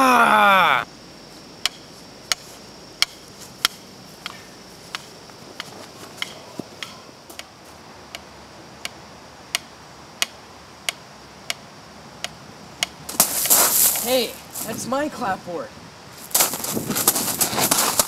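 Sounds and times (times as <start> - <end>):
steady hiss: 0.8 - 18.0.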